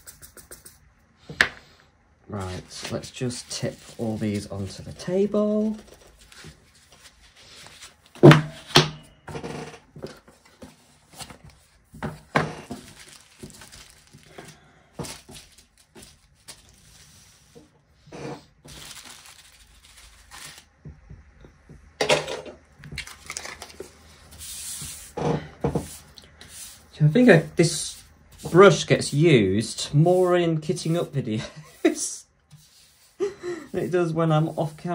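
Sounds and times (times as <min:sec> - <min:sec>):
plastic bags crinkling and tearing: 0:12.7 - 0:17.0, 0:18.6 - 0:20.7, 0:23.0 - 0:23.8.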